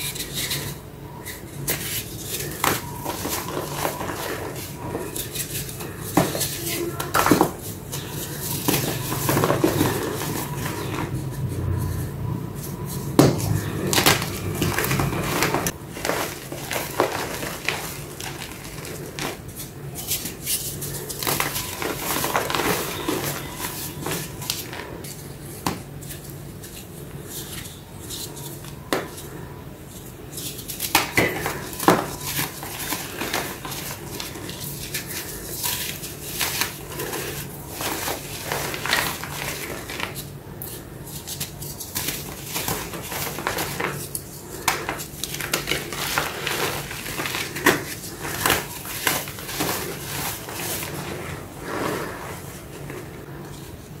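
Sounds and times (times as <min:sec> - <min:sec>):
chalk blocks crunching and crumbling: 0:00.0 - 0:54.0.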